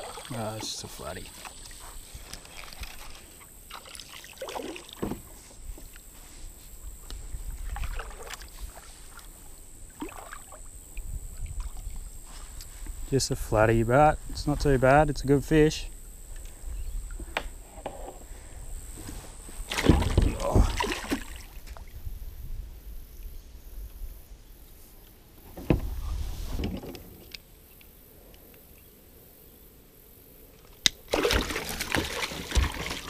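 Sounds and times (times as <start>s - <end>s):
fish thrashing in water: 19.6s - 21.6s, 31.1s - 33.0s.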